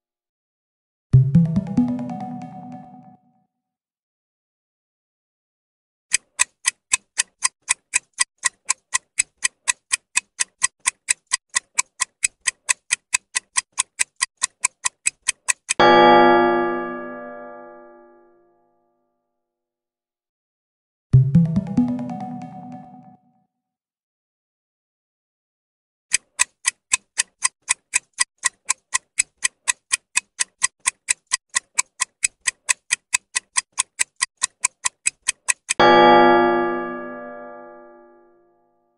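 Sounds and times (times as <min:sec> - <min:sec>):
clock ticking timer: 0:06.1 - 0:16.9, 0:26.1 - 0:37.0.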